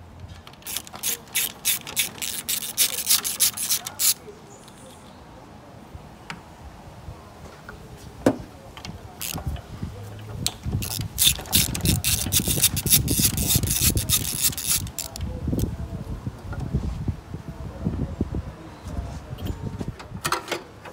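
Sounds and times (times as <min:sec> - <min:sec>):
socket ratchet clicking: 0:00.6 - 0:04.2, 0:10.8 - 0:15.2.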